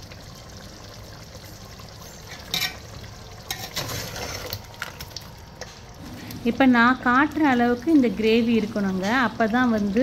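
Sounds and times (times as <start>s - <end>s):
ladle scraping and clinking: 2.3s - 2.9s, 3.5s - 5.0s.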